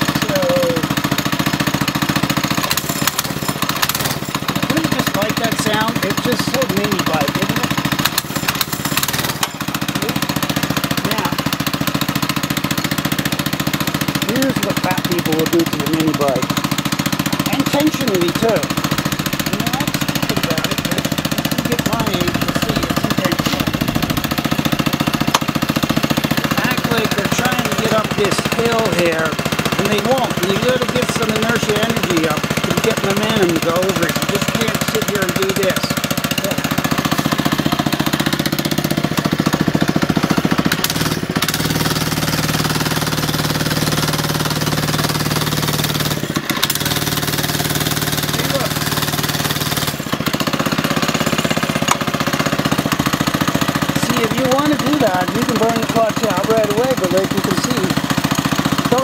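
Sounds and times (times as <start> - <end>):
small engine idling: 0.0 - 59.0.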